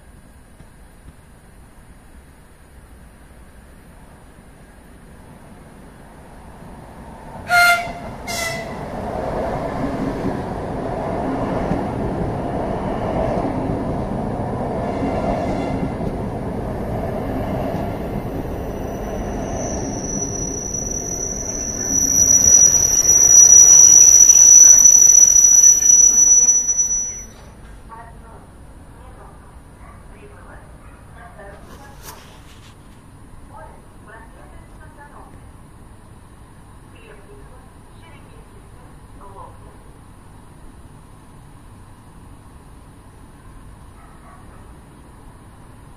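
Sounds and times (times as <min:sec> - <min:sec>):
train rumbling past: 0:00.0 - 0:45.9
train horn blasts: 0:07.4 - 0:08.9, 0:14.9 - 0:16.0
high-pitched squeal: 0:17.9 - 0:27.4.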